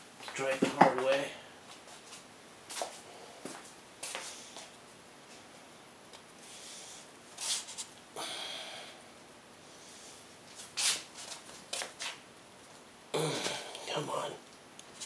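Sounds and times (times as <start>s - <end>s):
short forced breaths: 8.2s - 9.0s.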